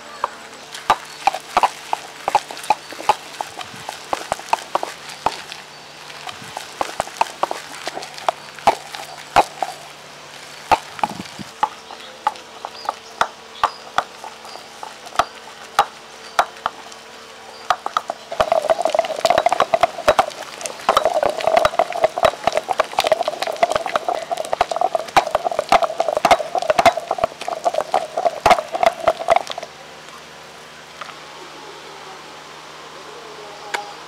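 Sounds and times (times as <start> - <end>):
paste mashing: 0.8 - 16.9, 17.7 - 29.7
stone pestle knocking in mortar: 0.9 - 5.6, 10.7 - 16.8, 17.7 - 29.7.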